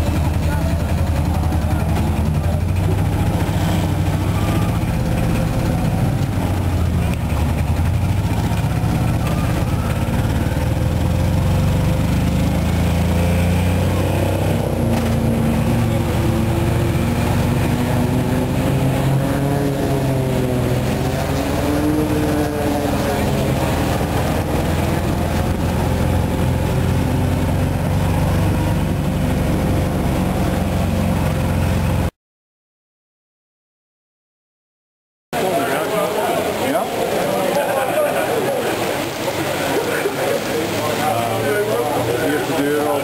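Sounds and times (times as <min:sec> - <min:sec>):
small engine running: 0:00.0 - 0:32.1.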